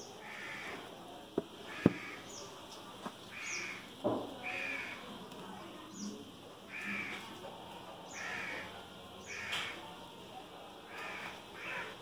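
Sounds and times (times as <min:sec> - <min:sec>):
crows cawing: 0:00.2 - 0:00.8, 0:01.6 - 0:02.4, 0:03.3 - 0:05.1, 0:06.7 - 0:07.3, 0:08.1 - 0:09.8, 0:10.9 - 0:12.0.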